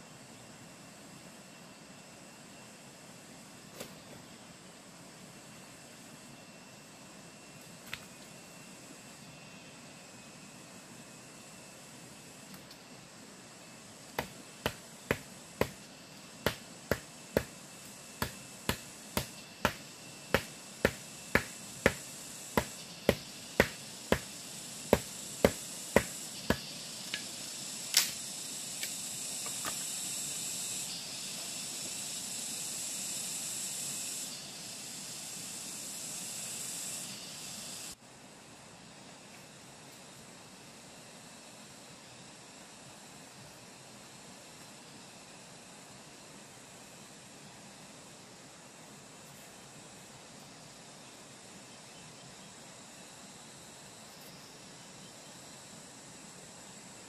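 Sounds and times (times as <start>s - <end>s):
steady high hiss: 0.0s - 57.0s
blade chopping wood pole: 14.2s - 15.8s, 16.4s - 17.6s, 18.2s - 24.3s, 24.9s - 26.7s.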